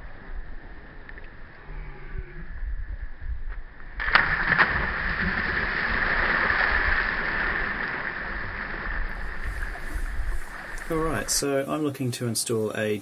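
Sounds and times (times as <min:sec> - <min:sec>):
people splashing into water: 0:04.0 - 0:11.4
rushing water: 0:04.0 - 0:11.9.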